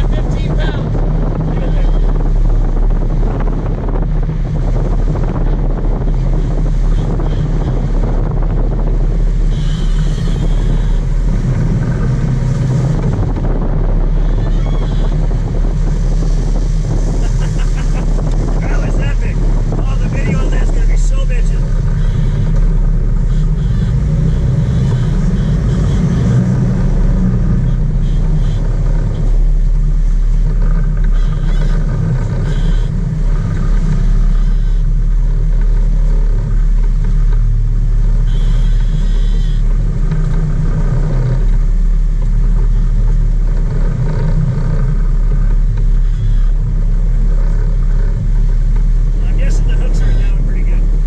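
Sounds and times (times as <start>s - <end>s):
boat engine drone: 0.0s - 51.0s
water churning in wake: 0.0s - 51.0s.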